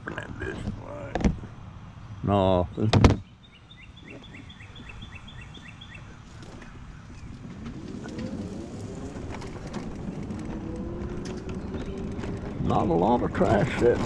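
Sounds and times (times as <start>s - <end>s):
bird chirping: 0.1s - 13.3s
electric scooter motor whining: 6.4s - 14.0s.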